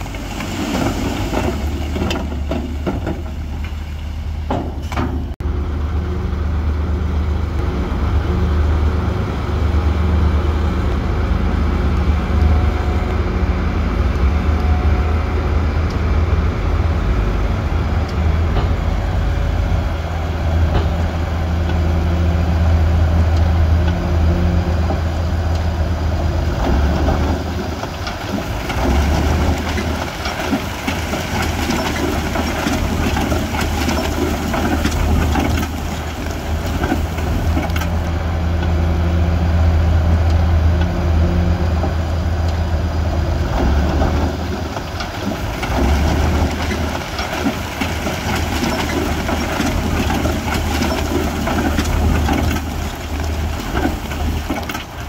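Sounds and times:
diesel machinery engine drone: 0.0 - 55.0
rock and gravel crunching: 27.8 - 38.1, 44.5 - 55.0.

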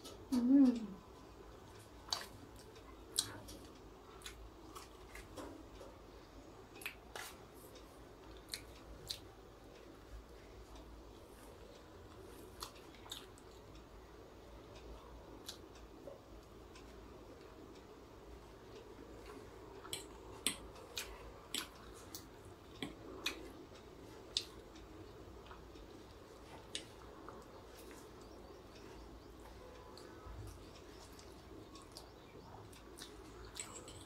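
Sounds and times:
chewing crispy fried chicken: 1.7 - 5.9, 11.5 - 13.6, 19.2 - 24.8.

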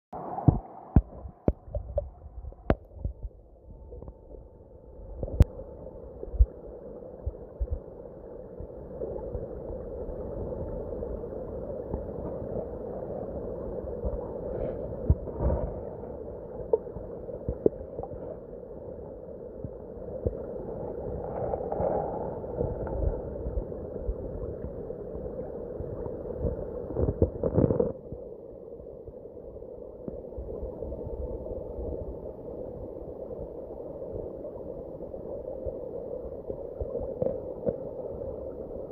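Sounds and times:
muffled underwater water rush: 0.1 - 38.9
dull underwater knocks: 0.5 - 3.4.

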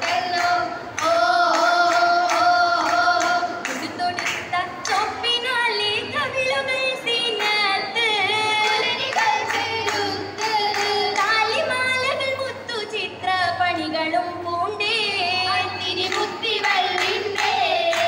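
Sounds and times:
rhythmic hand claps: 0.0 - 5.4, 7.3 - 11.7, 15.9 - 18.0
women singing together: 0.0 - 18.0.

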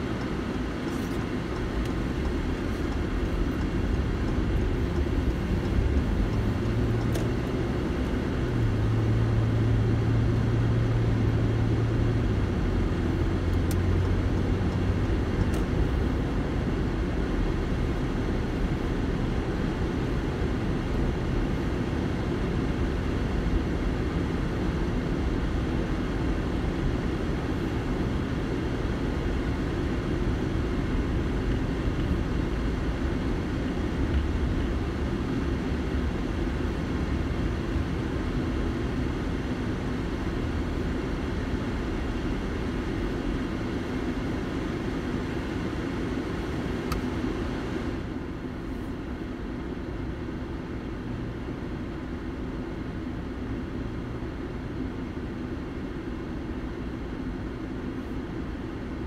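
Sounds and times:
car tyres and engine rumble: 0.0 - 59.0
faint click: 46.9 - 47.1.

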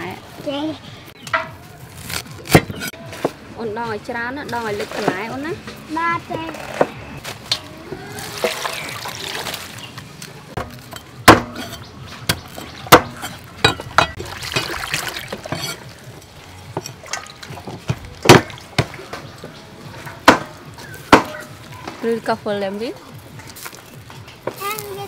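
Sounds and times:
water splashing over vegetables: 8.0 - 10.2, 14.0 - 19.3
sharp knocks: 10.6 - 14.2.

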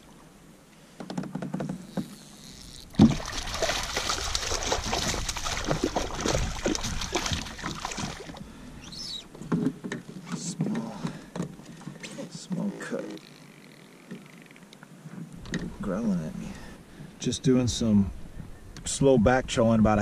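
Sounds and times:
fish splashing at water surface: 2.9 - 8.4.

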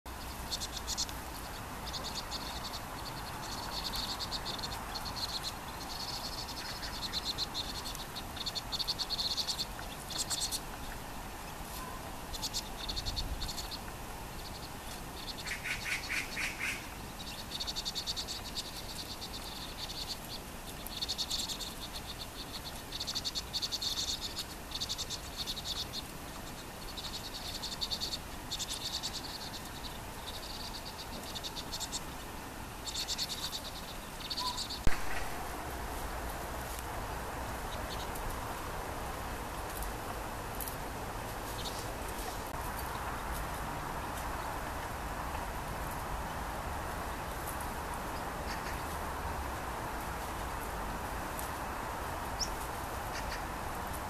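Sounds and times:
birds chattering trills: 0.1 - 38.8.

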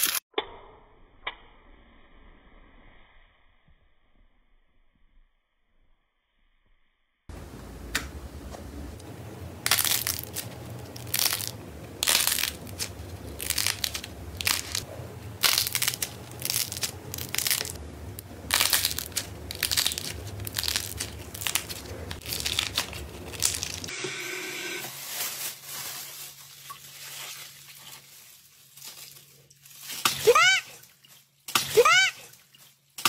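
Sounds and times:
clay crackling when kneaded: 7.3 - 23.9
steady low hum: 7.3 - 24.8.

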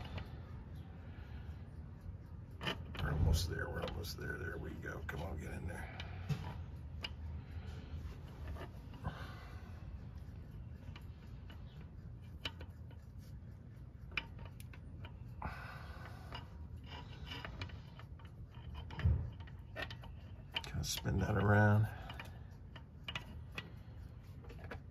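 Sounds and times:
light metallic clicks and taps: 16.3 - 24.9.

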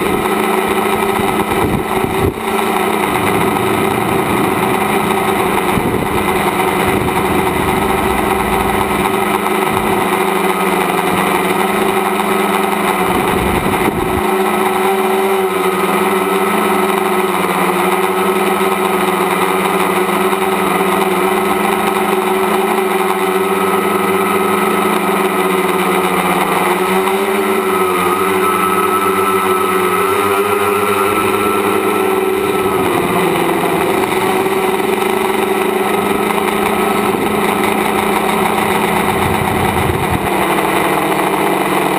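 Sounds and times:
drone motors buzzing: 0.0 - 41.9
low rumble: 1.5 - 11.2, 37.8 - 40.4.

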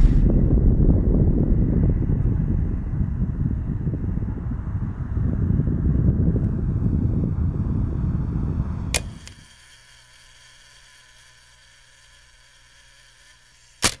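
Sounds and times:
deep rumbling: 0.0 - 9.0.

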